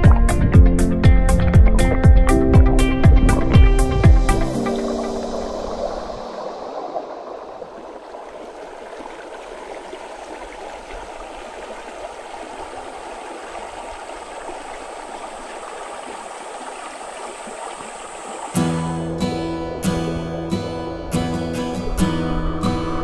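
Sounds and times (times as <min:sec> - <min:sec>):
acoustic guitar strumming: 0:00.0 - 0:06.3, 0:18.5 - 0:23.0
creek water over rocks: 0:00.0 - 0:23.0.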